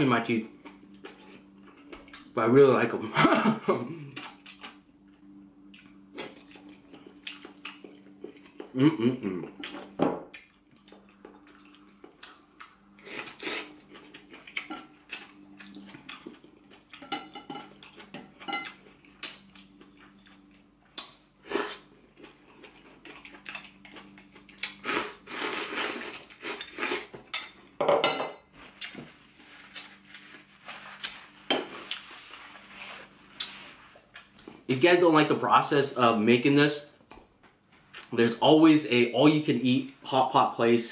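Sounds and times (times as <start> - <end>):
chewing and slurping: 0.6 - 2.3, 4.1 - 8.8, 9.5 - 27.2, 28.7 - 34.6.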